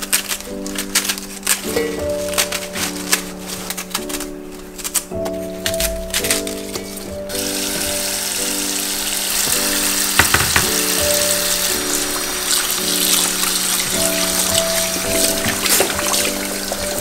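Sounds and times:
background music: 0.0 - 17.0
hand stirring leaves in water: 0.0 - 17.0
tap water running into bowl: 7.3 - 17.0.

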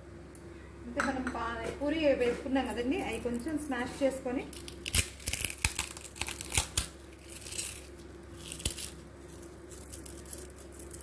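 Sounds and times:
crumbs rustling: 2.3 - 11.0
fried bread crunching: 4.5 - 11.0.

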